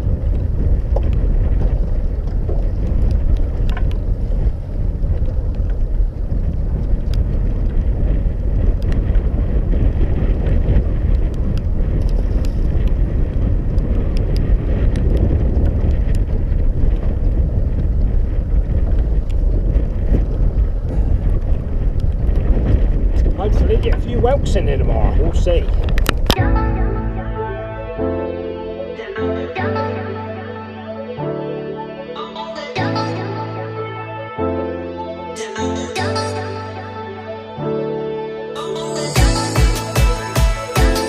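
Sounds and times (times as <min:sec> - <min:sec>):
wind buffeting microphone: 0:00.0 - 0:29.3.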